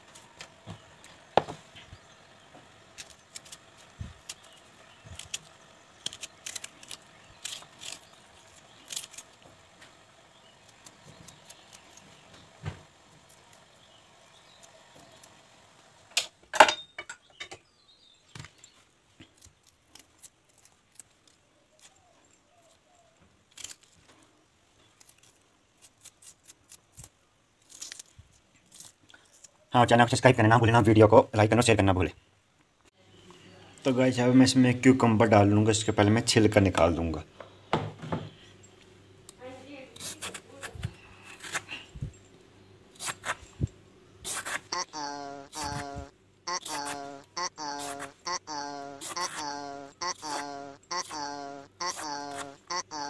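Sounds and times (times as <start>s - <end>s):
onion being peeled by hand: 0.0s - 16.0s, 18.3s - 30.4s, 39.2s - 53.0s.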